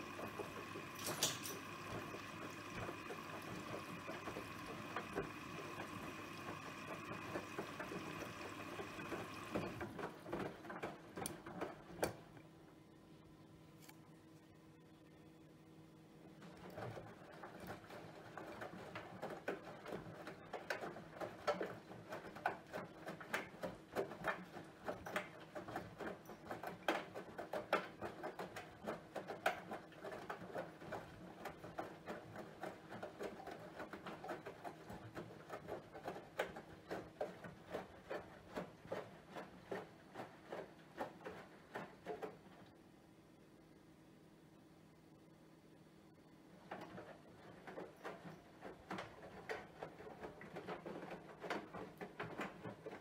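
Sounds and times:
low motor hum: 0:00.0 - 0:10.1
water sloshing in washing machine: 0:00.0 - 0:12.3, 0:16.4 - 0:42.9, 0:46.4 - 0:53.0.

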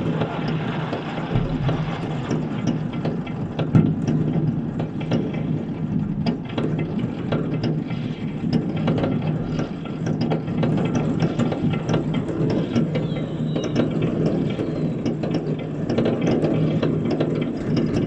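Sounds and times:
distant fireworks crackling: 0:00.0 - 0:05.0
continuous low rumble: 0:00.0 - 0:18.0.

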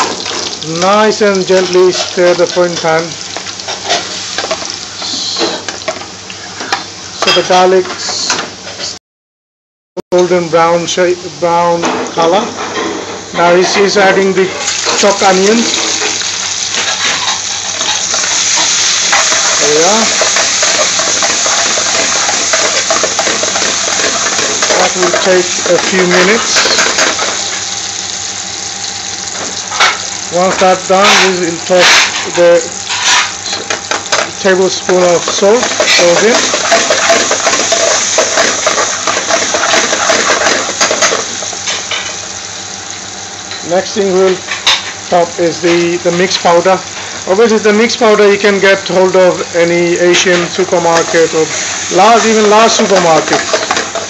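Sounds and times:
onions sizzling in oil: 0:00.0 - 0:08.2, 0:13.2 - 0:54.0
spatula stirring in pan: 0:01.8 - 0:02.7, 0:14.6 - 0:27.6, 0:32.9 - 0:42.0, 0:51.0 - 0:54.0
metal spoon clinking on pan: 0:16.8 - 0:27.2.

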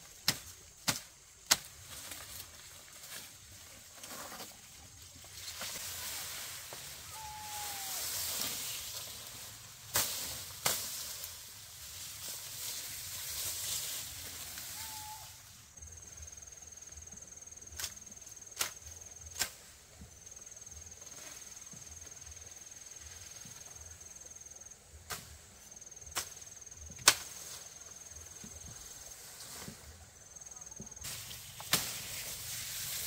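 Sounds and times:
rustle: 0:00.0 - 0:33.0
insect trilling: 0:05.8 - 0:09.3, 0:14.4 - 0:16.5.

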